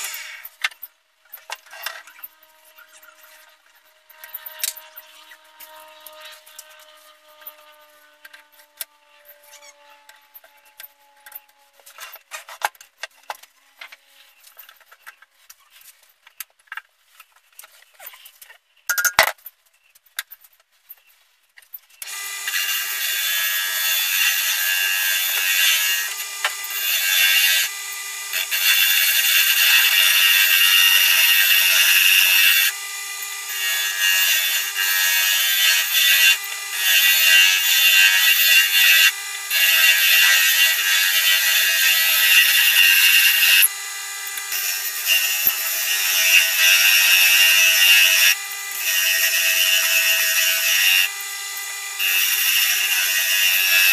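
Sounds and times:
chisel cutting turning wood: 22.0 - 53.9
wood lathe spinning: 22.0 - 53.9
sandpaper on turning wood: 33.4 - 43.7.

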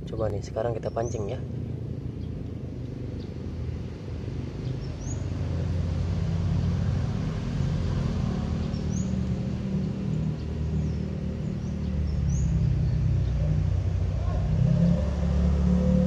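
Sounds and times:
bird chirp: 0.0 - 5.8, 8.2 - 16.0
vehicle engine rumble: 0.0 - 16.0.

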